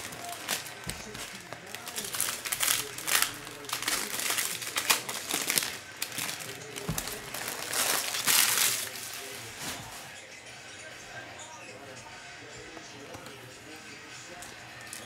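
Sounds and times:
foil wrappers crinkling: 0:00.0 - 0:10.2, 0:14.3 - 0:15.0.

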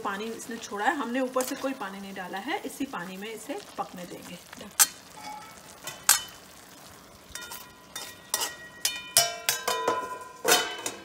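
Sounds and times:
metal spoon and lid clinking: 0:07.4 - 0:11.0.

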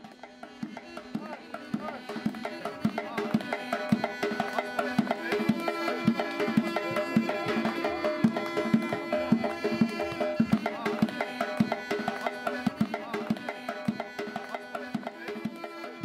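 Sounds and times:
drum beating a steady rhythm: 0:00.0 - 0:16.0
double-reed pipes playing melody: 0:05.1 - 0:10.8.

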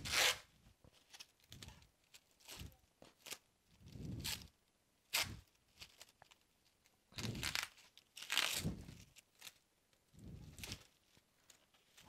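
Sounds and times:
packaging torn and crinkled: 0:07.2 - 0:09.6.

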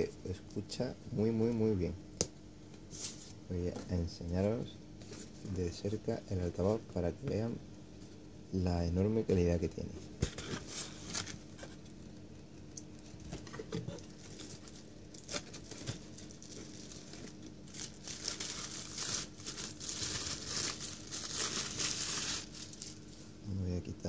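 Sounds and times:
plastic wrapping crinkling: 0:12.8 - 0:23.2.

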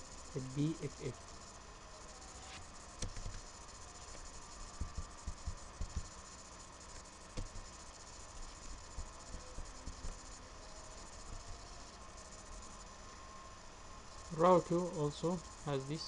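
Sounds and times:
faint hum: 0:00.0 - 0:16.0
microphone hiss: 0:00.0 - 0:16.0
soft low thumps: 0:04.8 - 0:06.1.

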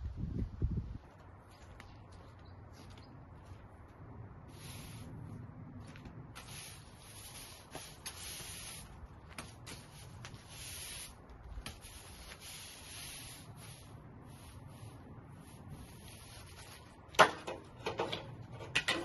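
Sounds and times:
push broom sweeping bricks: 0:04.5 - 0:19.0.

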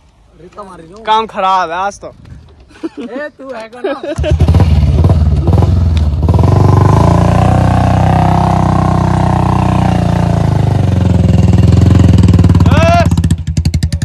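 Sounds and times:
motorcycle engine revving hard: 0:04.2 - 0:14.0.

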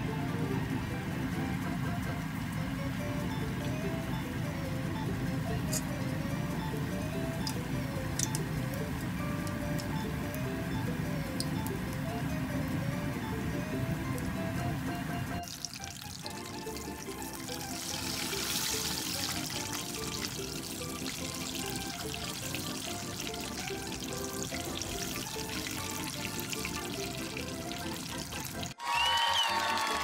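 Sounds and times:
background music: 0:00.0 - 0:30.0
food sizzling in hot oil: 0:01.6 - 0:12.0, 0:15.4 - 0:28.8.

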